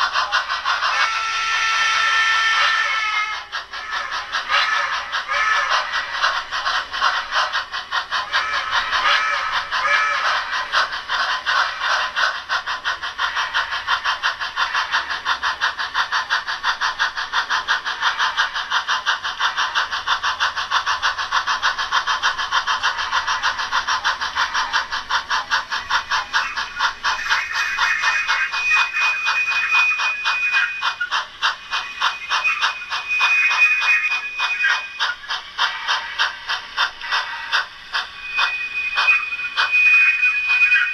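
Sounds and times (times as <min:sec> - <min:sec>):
model train steam chuffs: 0:00.0 - 0:40.9
high steady tone: 0:25.6 - 0:35.6, 0:36.2 - 0:40.9.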